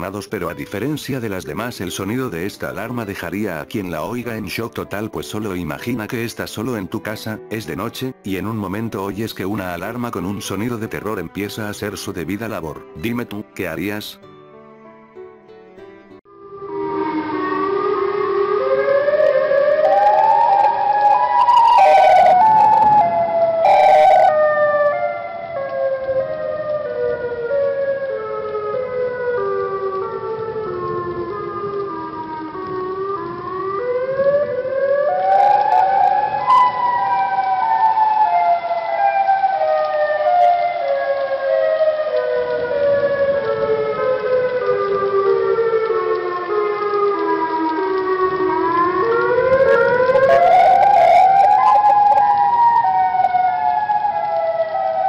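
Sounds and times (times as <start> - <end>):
warning siren wailing: 16.3 - 55.0
sharp cracks: 35.1 - 55.0.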